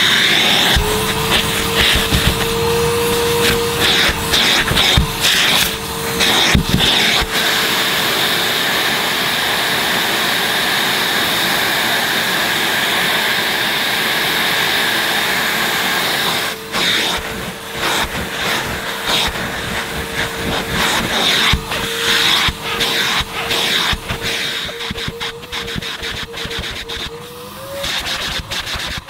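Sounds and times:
vacuum cleaner whining: 0:00.0 - 0:29.0.

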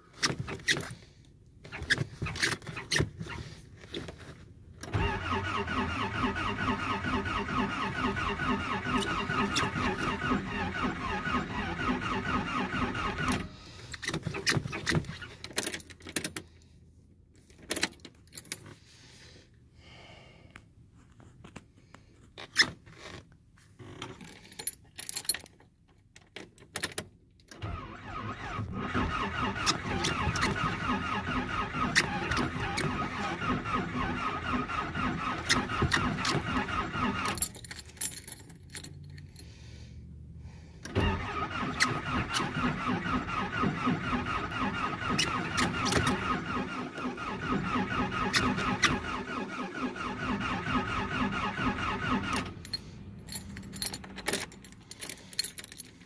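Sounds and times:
engine cranking on starter: 0:04.8 - 0:15.3, 0:27.5 - 0:37.6, 0:40.7 - 0:55.6.

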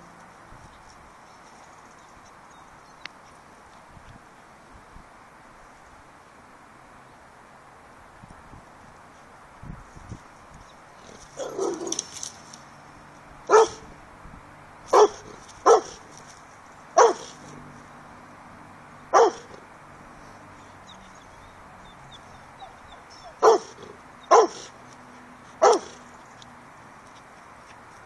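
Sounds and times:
dog barking: 0:11.4 - 0:12.0, 0:13.5 - 0:13.9, 0:14.9 - 0:16.0, 0:17.0 - 0:17.4, 0:19.1 - 0:19.6, 0:23.2 - 0:24.7, 0:25.6 - 0:26.0.

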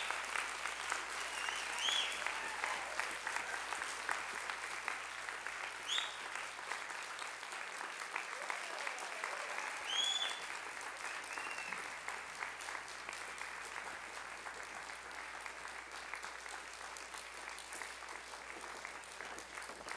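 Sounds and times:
audience applauding: 0:00.0 - 0:19.9
high-pitched cheers: 0:01.2 - 0:03.8, 0:08.2 - 0:10.5.

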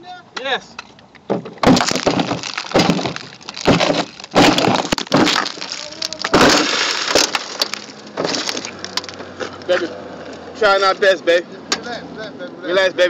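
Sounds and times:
loud crashing impacts: 0:01.4 - 0:09.1
glass breaking: 0:01.4 - 0:09.2.

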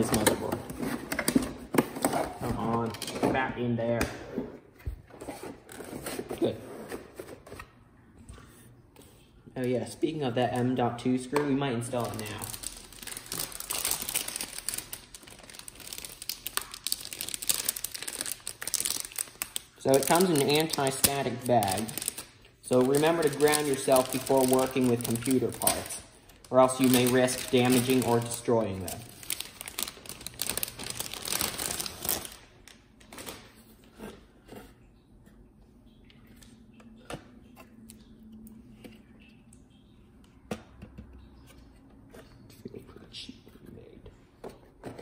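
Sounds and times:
plastic bag crinkling: 0:11.8 - 0:33.6.

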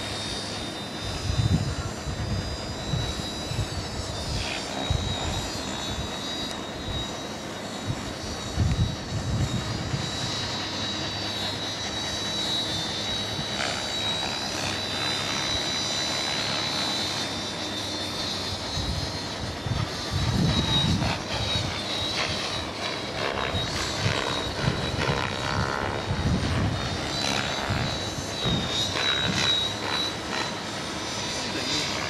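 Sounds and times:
quadcopter motors whining: 0:00.0 - 0:32.0.

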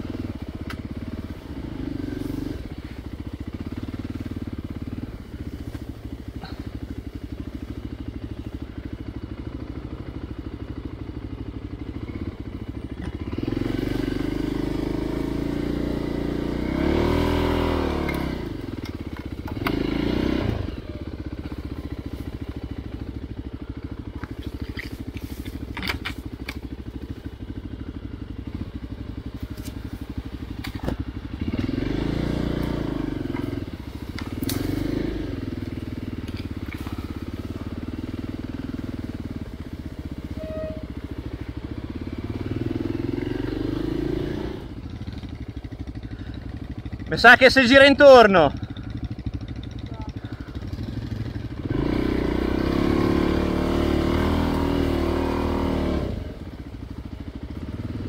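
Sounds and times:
motorcycle engine running: 0:00.0 - 0:58.0
sharp clicks and knocks: 0:24.2 - 0:26.6.

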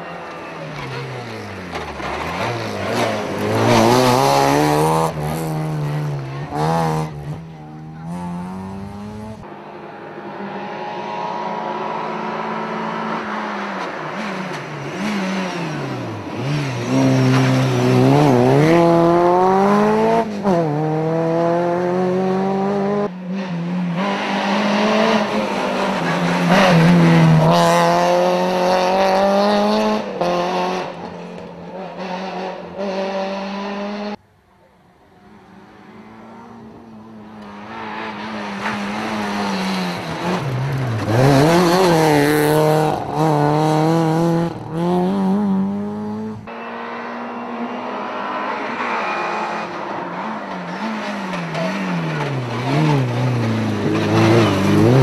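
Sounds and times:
rally car engine revving past: 0:00.2 - 0:09.5, 0:10.2 - 0:31.2, 0:35.4 - 0:55.0.

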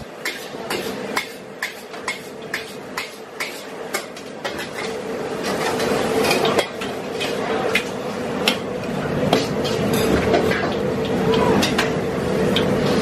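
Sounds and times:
metal spatula clanking on wok: 0:00.0 - 0:08.7.

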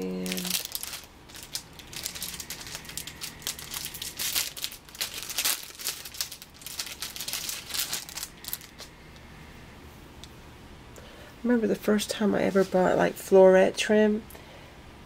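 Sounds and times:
packaging crinkling and rustling: 0:00.0 - 0:08.9.

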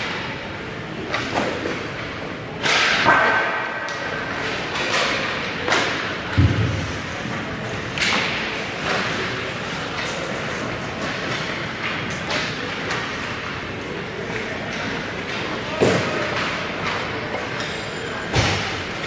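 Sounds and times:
hockey sticks knocking puck: 0:01.1 - 0:06.7, 0:14.3 - 0:17.1.

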